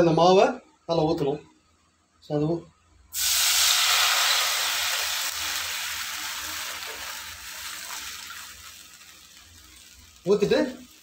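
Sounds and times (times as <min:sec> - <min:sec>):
batter sizzling in hot fat: 0:03.1 - 0:11.0.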